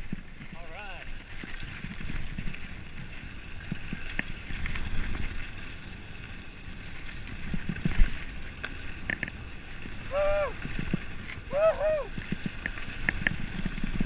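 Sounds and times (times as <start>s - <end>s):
bike knocks clicks and rattles: 0.0s - 10.0s, 12.1s - 14.0s
bike tyre rumble on dirt trail: 0.0s - 14.0s.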